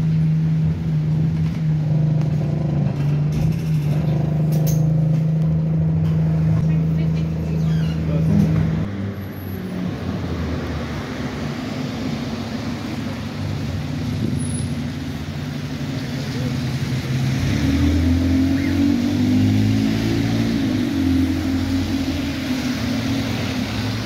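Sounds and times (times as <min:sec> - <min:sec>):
bus diesel engine revving: 0:09.9 - 0:24.0.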